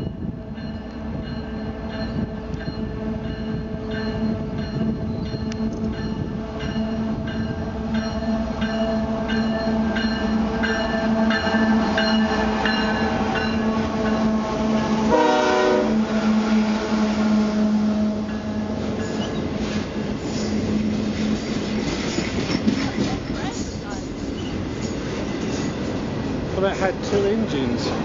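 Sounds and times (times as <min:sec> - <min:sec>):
train bell ringing: 0:00.0 - 0:16.4, 0:18.1 - 0:19.5
diesel locomotive engine hum: 0:00.0 - 0:28.0
train horn blast: 0:11.0 - 0:18.7.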